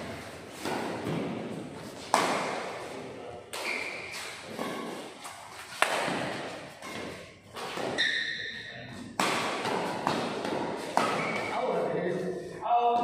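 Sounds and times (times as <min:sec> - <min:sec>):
rackets hitting shuttlecock: 0:00.5 - 0:02.9, 0:03.5 - 0:08.4, 0:09.0 - 0:11.8
high squeak: 0:07.9 - 0:08.8.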